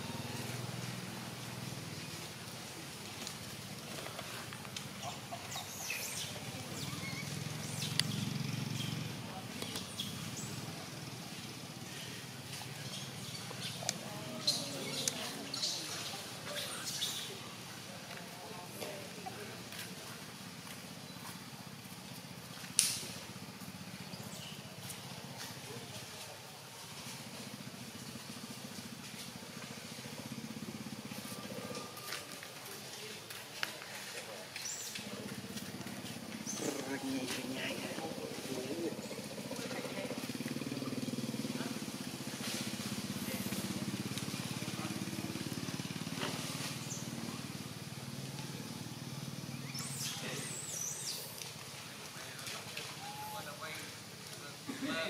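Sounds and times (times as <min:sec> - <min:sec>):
small engine running: 0:05.7 - 0:17.2, 0:34.9 - 0:52.9.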